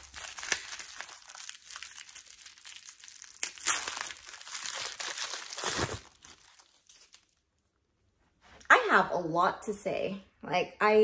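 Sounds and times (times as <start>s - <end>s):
tissue paper crinkling: 0.0s - 7.5s.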